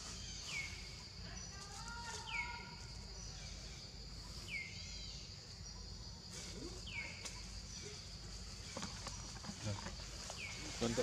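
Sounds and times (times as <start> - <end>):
insect buzz: 0.0 - 11.0.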